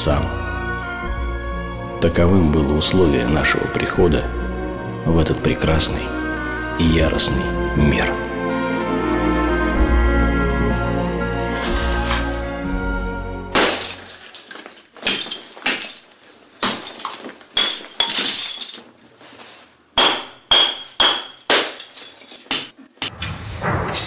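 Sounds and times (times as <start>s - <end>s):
glass bottles smashing: 13.5s - 22.8s.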